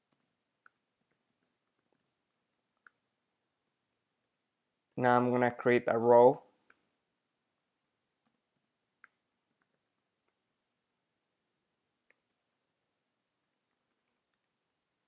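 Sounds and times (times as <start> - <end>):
computer keys typing: 0.0 - 3.0, 3.6 - 6.8, 7.8 - 10.7, 12.0 - 14.5.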